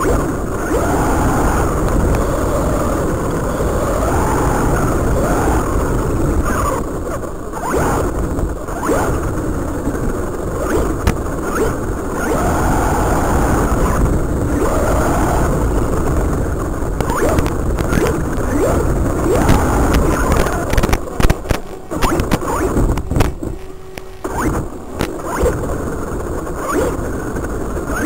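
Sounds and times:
electric motor whining: 0:00.0 - 0:28.0.

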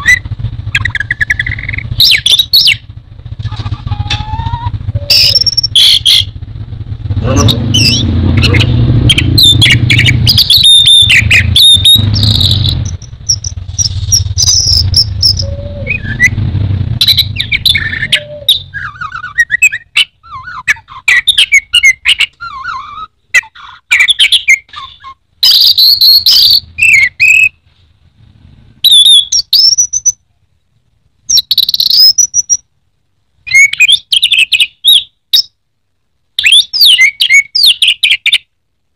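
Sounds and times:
thrush singing: 0:00.0 - 0:23.1.

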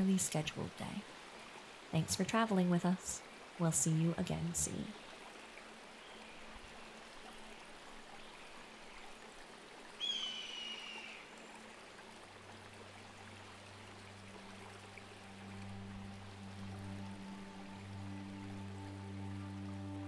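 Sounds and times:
stream rushing: 0:00.0 - 0:20.0
low sustained music notes: 0:11.4 - 0:20.0.

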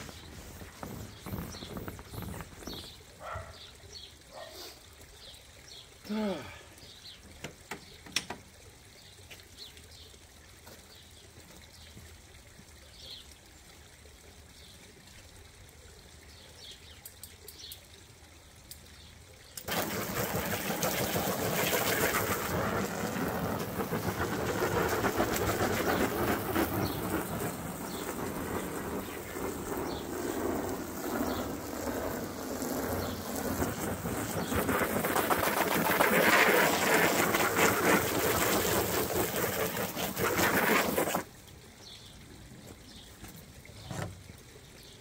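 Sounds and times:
hose spraying water: 0:00.0 - 0:03.7, 0:19.6 - 0:41.6
birds chirping: 0:00.0 - 0:08.2, 0:19.0 - 0:37.7.

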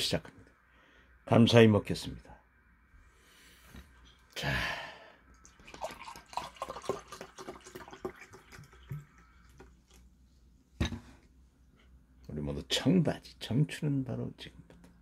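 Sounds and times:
liquid glugging into a glass: 0:05.4 - 0:10.0.

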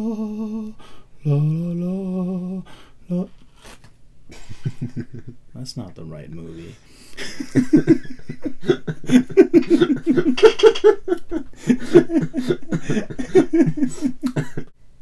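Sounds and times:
man laughing hard: 0:04.3 - 0:05.4, 0:07.2 - 0:14.7.

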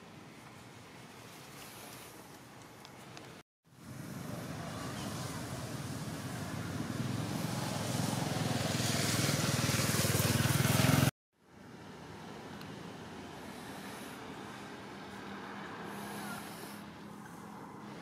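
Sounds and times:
vehicle engine running: 0:03.7 - 0:18.0.

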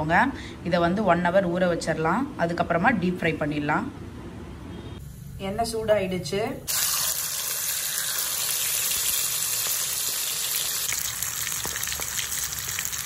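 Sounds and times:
deep-frying sizzle and pops: 0:06.7 - 0:13.0.

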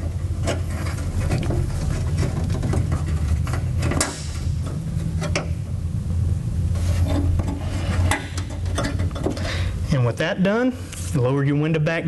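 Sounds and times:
plastic rubbing against metal: 0:00.0 - 0:05.4
steady low hum: 0:00.0 - 0:12.0.

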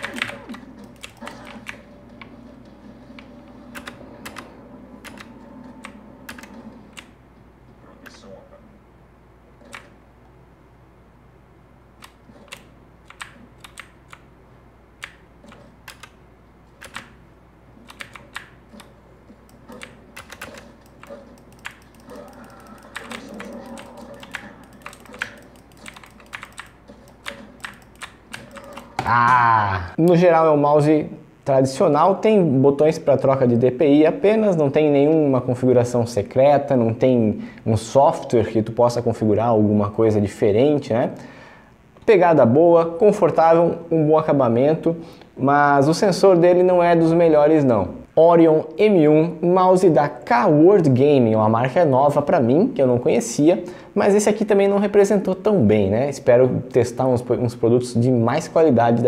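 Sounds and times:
gaming mouse clicks: 0:00.0 - 0:02.3, 0:03.2 - 0:07.2, 0:09.6 - 0:10.0, 0:12.0 - 0:14.3, 0:15.0 - 0:17.2, 0:17.8 - 0:29.0
computer keyboard clicks: 0:12.0 - 0:14.2, 0:15.0 - 0:16.2, 0:16.8 - 0:17.2, 0:17.9 - 0:29.0.

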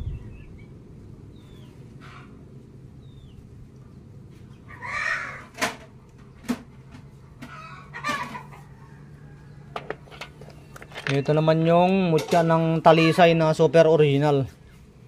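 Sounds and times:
short animal calls: 0:04.7 - 0:05.5.

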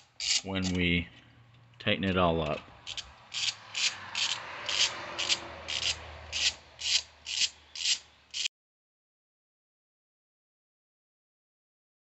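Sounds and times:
ratchet wrench clicking: 0:00.0 - 0:00.8, 0:02.8 - 0:08.5.

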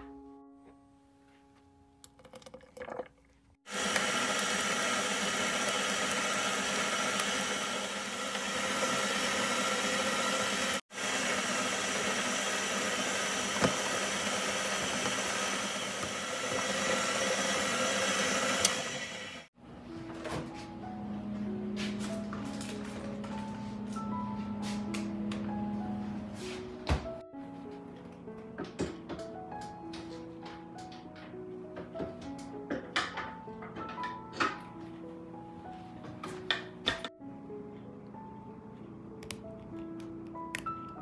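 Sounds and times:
stand mixer running: 0:03.7 - 0:19.5.

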